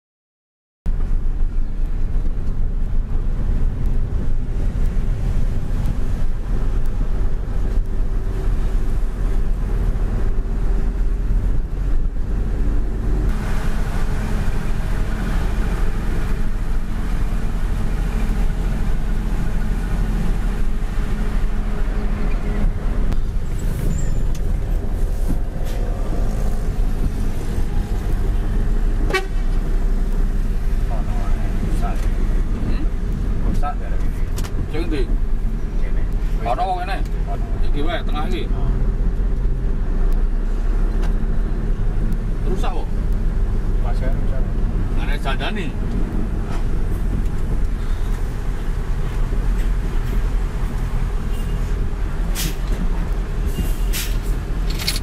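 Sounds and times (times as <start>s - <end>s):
truck diesel engine running: 1.1s - 36.2s.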